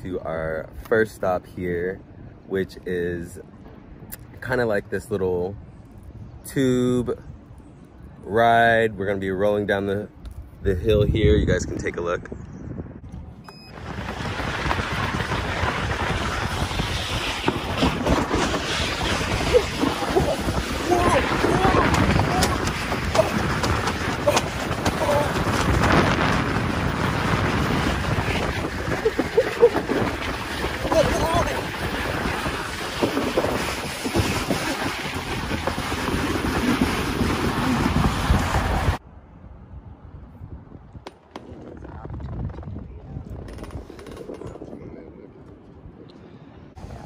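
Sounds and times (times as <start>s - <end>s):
wind buffeting microphone: 0.0s - 47.0s
tube scraping over studded matting: 13.8s - 39.0s.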